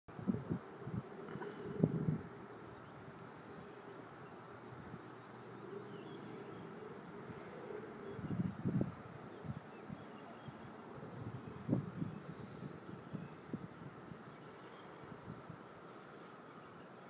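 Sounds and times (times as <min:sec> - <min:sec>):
wind gusts on microphone: 0:00.1 - 0:02.5, 0:06.6 - 0:15.8.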